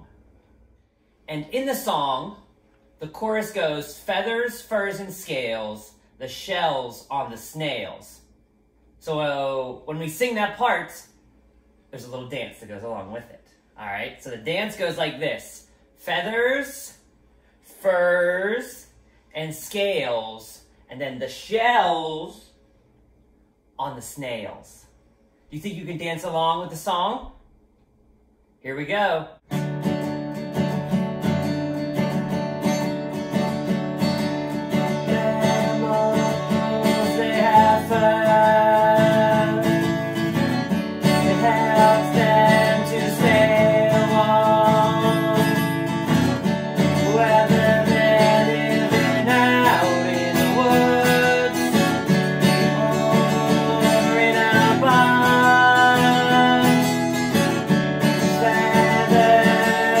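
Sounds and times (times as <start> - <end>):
strummed acoustic guitar: 29.5 - 60.0.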